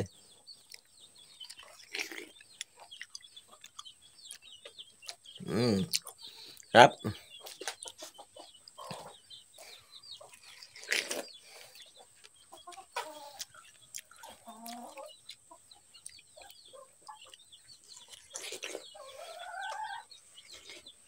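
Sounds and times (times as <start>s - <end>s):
chickens clucking: 0.0s - 21.0s.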